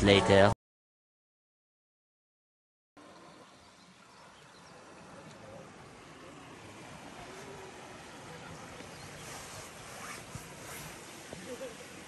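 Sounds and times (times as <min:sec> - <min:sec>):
river water rushing: 0:03.0 - 0:12.0.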